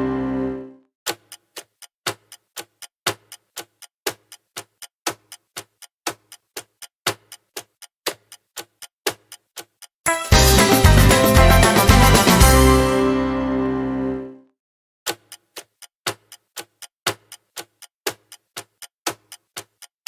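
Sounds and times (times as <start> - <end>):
clock-like timer ticking: 1.1 - 11.8, 15.1 - 20.0
upbeat background music: 10.1 - 14.2.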